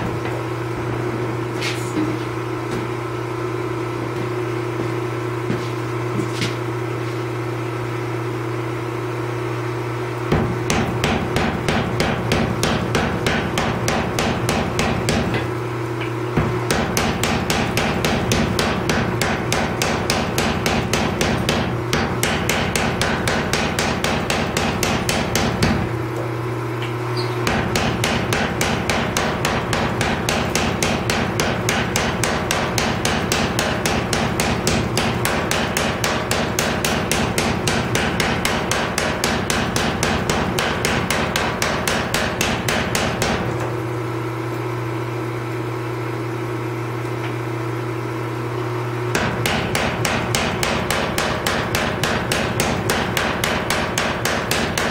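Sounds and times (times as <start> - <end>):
hammer motor humming: 7.8 - 44.4, 47.0 - 54.9
power hammer striking steel: 10.3 - 15.5, 16.4 - 26.0, 27.4 - 43.5, 49.1 - 54.9.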